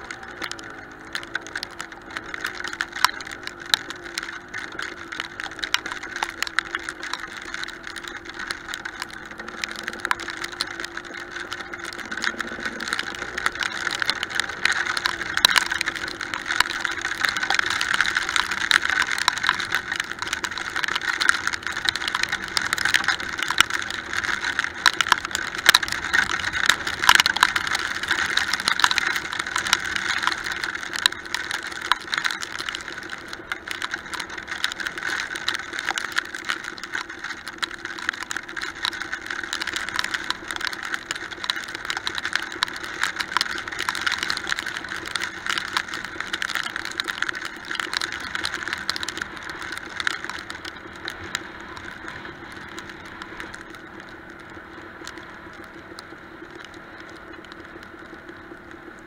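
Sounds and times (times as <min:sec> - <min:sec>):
dirt bike engine running: 0:00.0 - 0:35.7
sharp clicks and rattles: 0:00.0 - 0:59.0.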